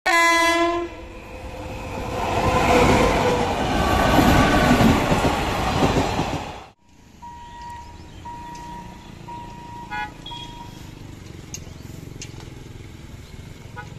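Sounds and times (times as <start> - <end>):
electric locomotive horn: 0.0 - 1.8, 7.2 - 10.9
train passing at speed: 0.1 - 11.4.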